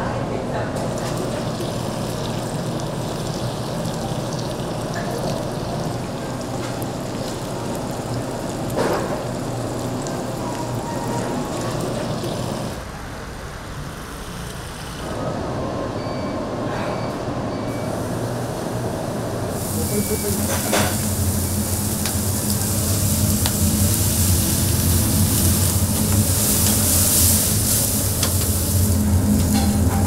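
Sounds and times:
meat sizzling on a grill: 0.9s - 12.8s, 19.5s - 30.0s.

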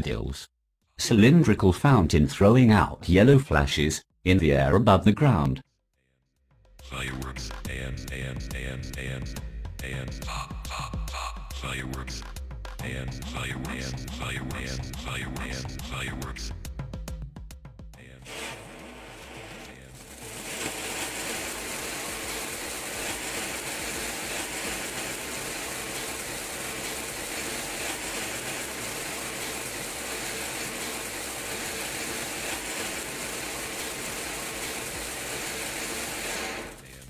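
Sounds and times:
fireworks fountain hissing and crackling: 18.3s - 37.0s.

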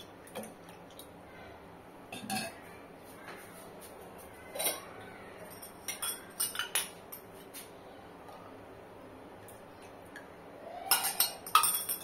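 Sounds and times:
ladle clinking against steel pot: 10.9s - 12.0s.

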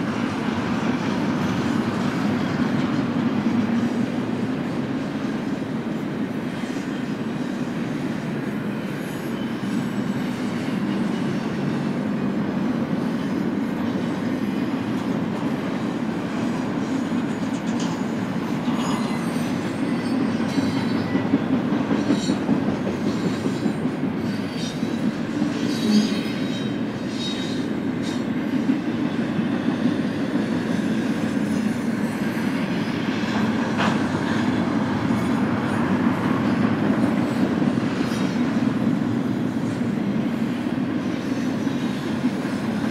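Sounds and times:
train wheels rumbling on rails: 0.0s - 42.9s
faint high wheel squeaks: 18.6s - 21.4s.

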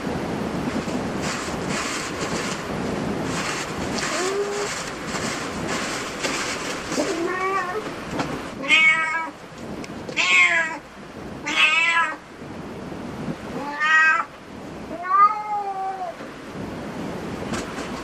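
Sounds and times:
cat meowing: 7.0s - 7.8s, 8.6s - 9.4s, 10.2s - 10.8s, 11.4s - 12.2s, 13.6s - 14.3s, 14.9s - 16.2s.

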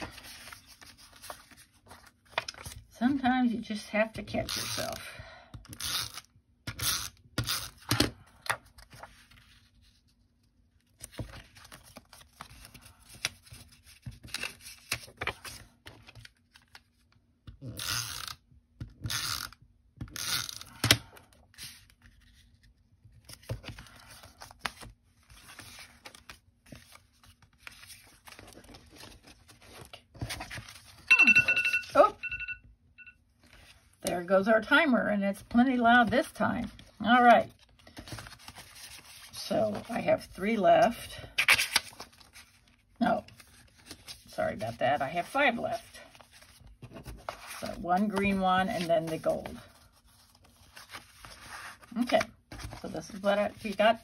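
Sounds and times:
paper rustling and sliding: 0.0s - 2.8s, 45.3s - 54.0s
timer alarm beeping: 31.1s - 33.2s.

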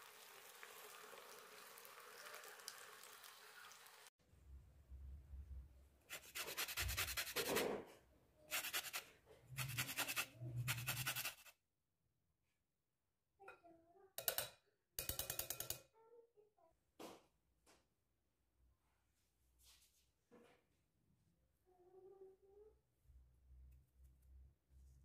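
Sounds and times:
grater scraping orange peel: 6.1s - 7.6s, 8.5s - 11.5s.

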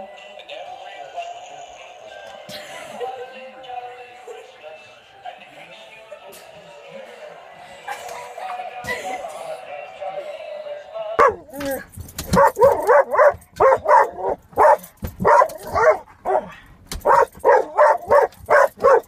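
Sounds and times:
dog barking rapidly: 11.2s - 19.0s.

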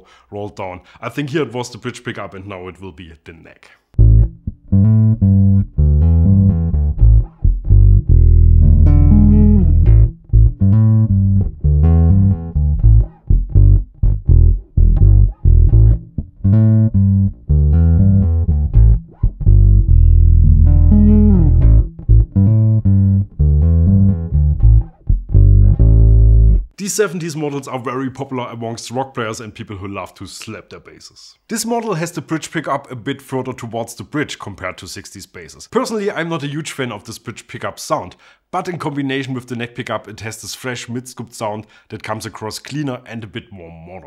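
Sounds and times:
electric bass riff: 4.0s - 26.7s.

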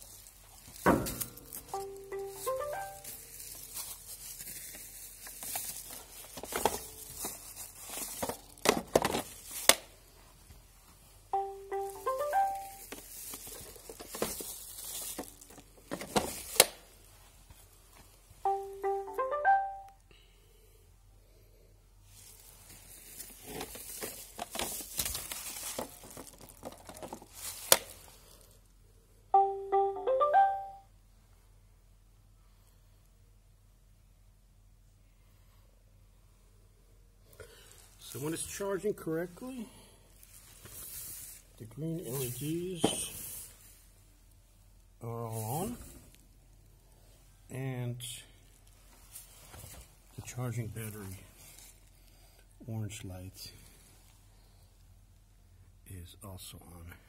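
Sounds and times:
rustling: 0.0s - 18.4s, 22.0s - 28.7s, 40.1s - 44.6s, 48.4s - 52.3s.

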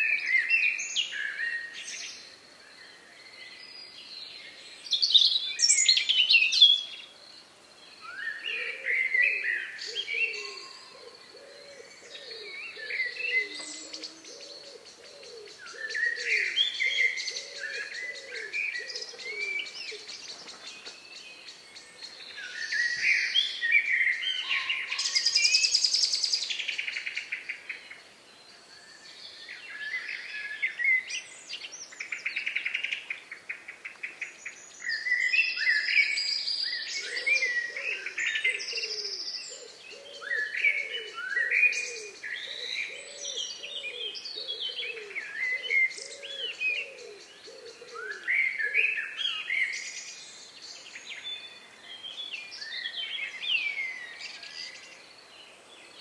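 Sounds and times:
forest birds singing: 0.0s - 56.0s
lower-pitched bird call: 11.8s - 20.1s.

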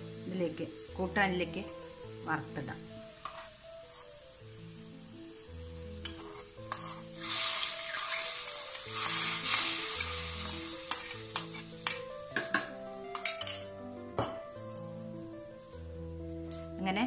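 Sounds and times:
hot oil sizzling loudly: 0.0s - 16.8s
spoon clinking against pot: 10.0s - 14.4s.

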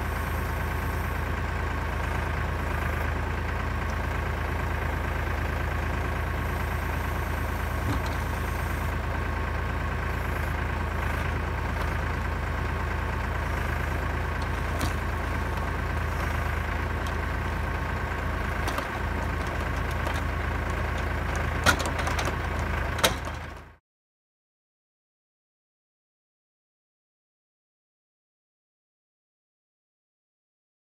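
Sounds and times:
diesel tractor engine running: 0.0s - 23.8s.

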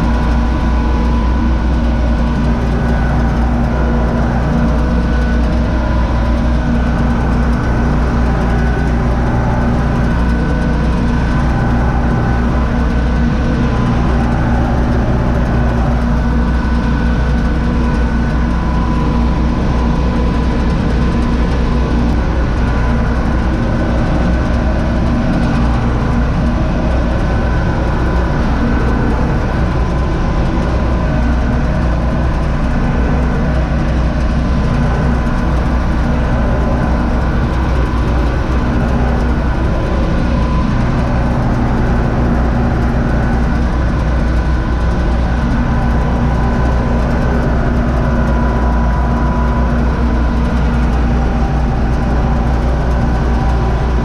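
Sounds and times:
tractor diesel engine hum: 0.0s - 54.0s.

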